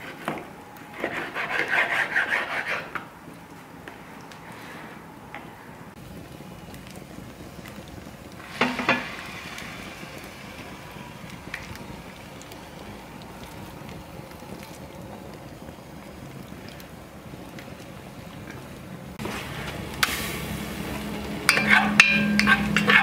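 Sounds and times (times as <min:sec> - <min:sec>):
faint fire crackles: 0:00.0 - 0:23.0
wood fire burning: 0:00.0 - 0:23.0
beef frying in a pan: 0:06.0 - 0:23.0.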